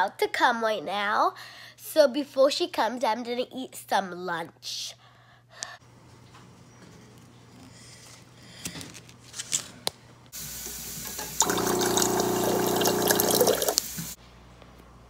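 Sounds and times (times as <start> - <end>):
water pouring into glass jar: 11.4 - 13.8.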